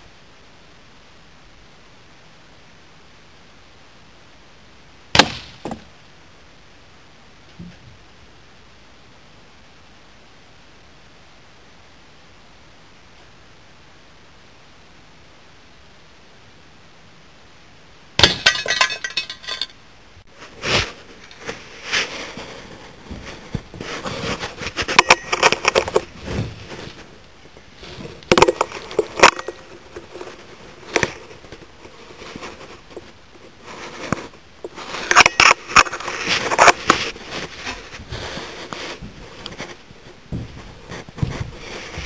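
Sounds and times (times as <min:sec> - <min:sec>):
handling clicks and clinks: 0:18.2 - 0:19.8.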